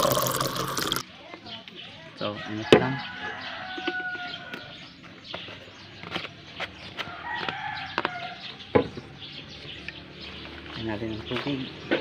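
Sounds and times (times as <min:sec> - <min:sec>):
rooster crowing: 0:02.3 - 0:04.8, 0:07.1 - 0:08.5.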